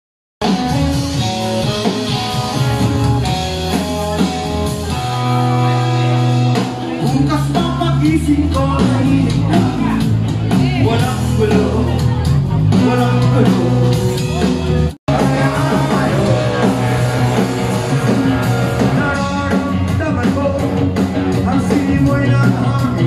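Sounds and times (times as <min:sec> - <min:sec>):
live rock band playing: 0:00.4 - 0:23.0
man singing: 0:06.8 - 0:14.5, 0:15.1 - 0:23.0.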